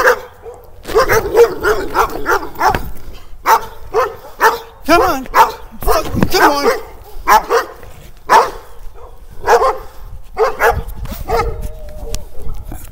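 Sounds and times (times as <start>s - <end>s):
dog barking: 0.0s - 12.6s.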